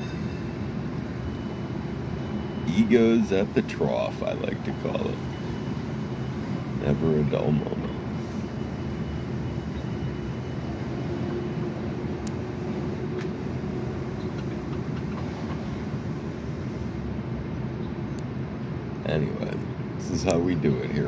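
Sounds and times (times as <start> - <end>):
faint hum: 0.0 - 14.7.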